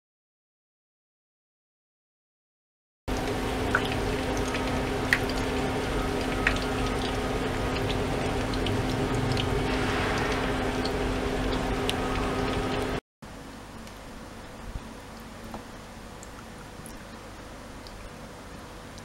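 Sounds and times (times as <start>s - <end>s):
motor humming: 3.1s - 13.0s.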